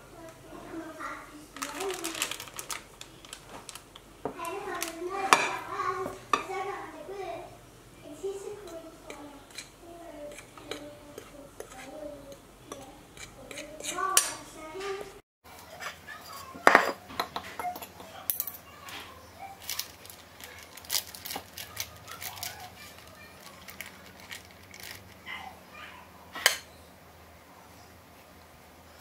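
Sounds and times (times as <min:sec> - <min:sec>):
plastic bag crinkling: 0:01.5 - 0:05.3, 0:19.5 - 0:25.4
cutlery clinking on plates: 0:15.8 - 0:18.6.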